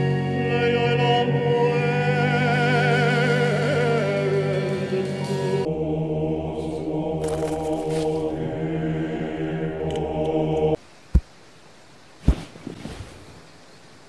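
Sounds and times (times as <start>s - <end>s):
many voices chanting: 0.0s - 10.8s.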